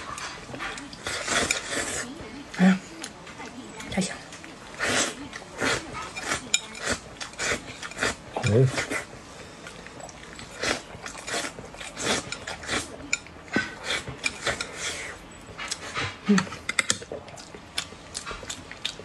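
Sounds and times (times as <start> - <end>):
wet chewing and lip smacking: 15.5 - 19.0.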